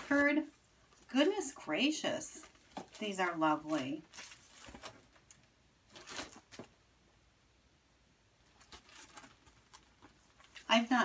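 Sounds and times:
paper rustling: 0.0s - 1.7s, 2.3s - 6.8s, 8.4s - 11.0s.

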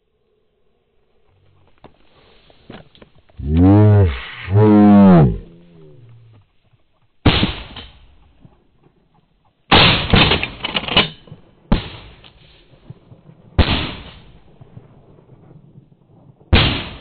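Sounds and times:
rapid gunshot cracks: 7.2s - 8.2s, 9.7s - 10.6s, 13.6s - 14.4s, 16.5s - 17.0s.

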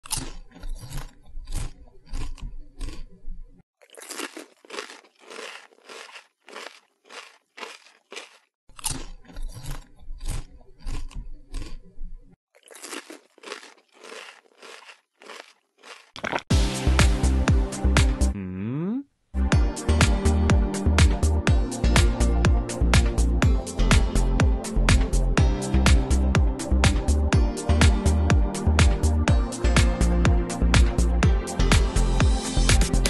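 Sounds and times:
hamster crunching food: 3.8s - 11.8s, 12.6s - 16.5s.

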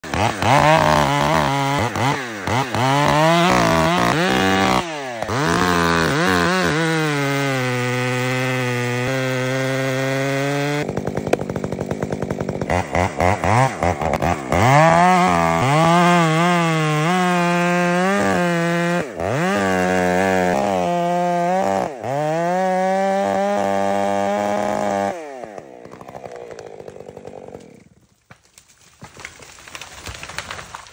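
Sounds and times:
chainsaw at full throttle: 0.0s - 28.0s
tree cracking and rustling: 10.9s - 15.1s, 25.8s - 30.9s.

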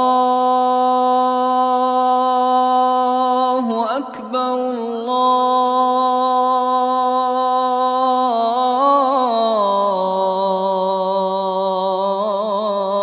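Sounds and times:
man chanting call to prayer: 0.0s - 13.0s.

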